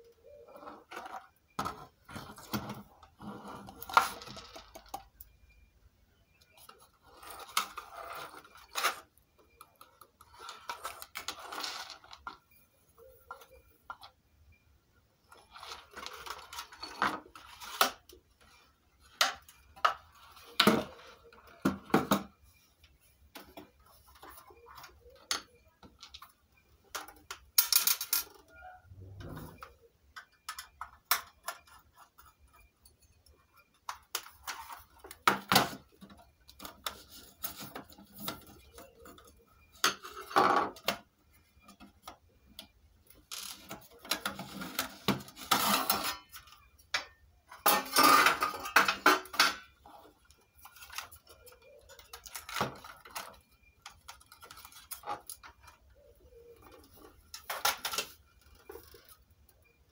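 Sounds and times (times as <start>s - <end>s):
plastic parts and tools clattering: 0.5s - 5.6s, 6.4s - 14.2s, 15.2s - 59.9s.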